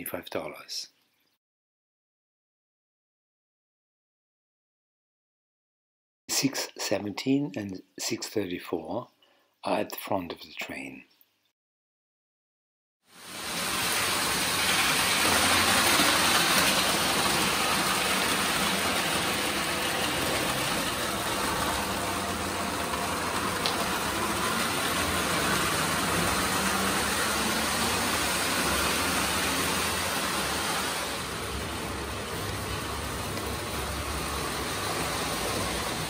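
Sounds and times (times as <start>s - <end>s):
electric motor hum: 13.5s - 36.0s.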